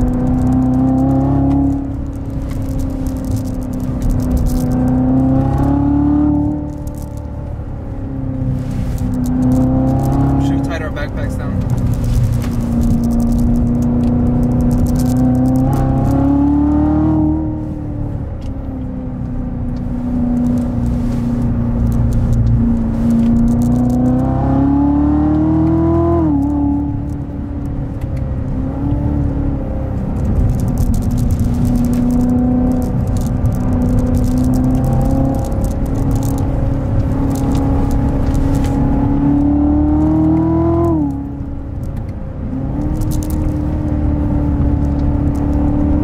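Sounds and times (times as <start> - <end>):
car engine from inside cabin: 0.0 - 46.0.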